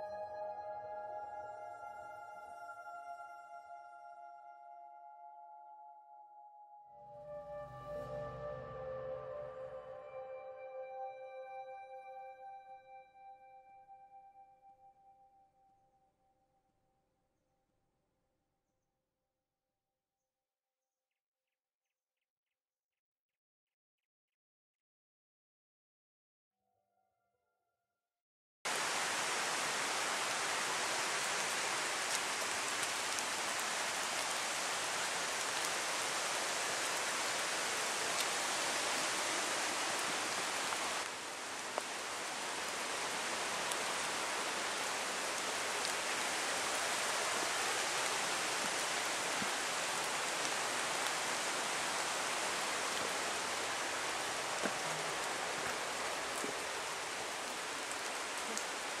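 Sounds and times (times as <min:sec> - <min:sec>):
water noise: 0:28.7 - 0:59.0.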